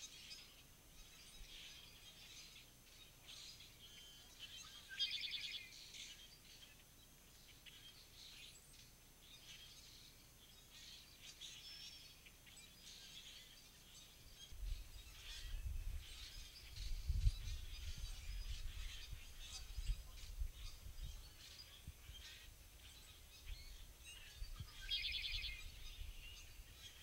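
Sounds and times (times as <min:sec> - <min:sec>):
small birds chirping: 0:00.0 - 0:27.0.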